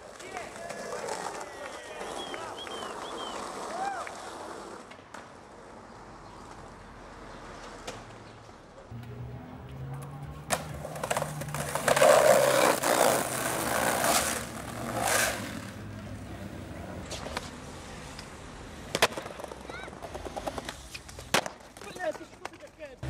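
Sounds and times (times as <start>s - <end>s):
skateboard grinding: 0.0s - 6.6s, 8.9s - 16.4s
skateboard clacks: 0.0s - 6.7s, 7.5s - 15.8s, 18.1s - 23.0s.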